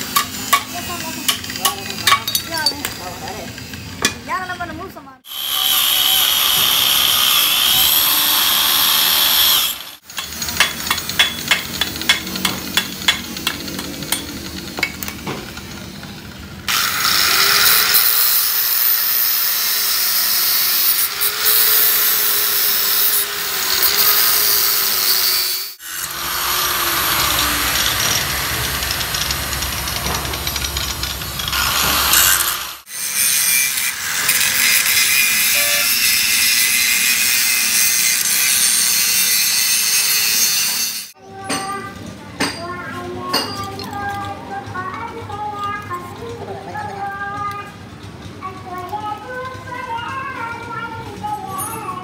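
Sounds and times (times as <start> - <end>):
power tools running: 0.0 - 41.2.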